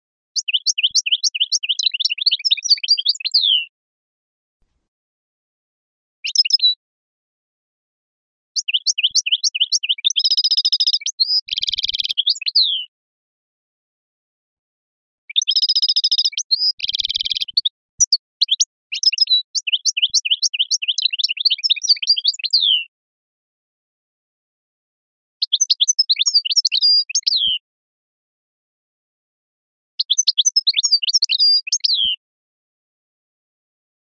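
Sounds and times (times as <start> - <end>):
goldfinch singing: 0.4 - 3.7, 6.2 - 6.8, 8.6 - 12.9, 15.3 - 22.9, 25.4 - 27.6, 30.0 - 32.2.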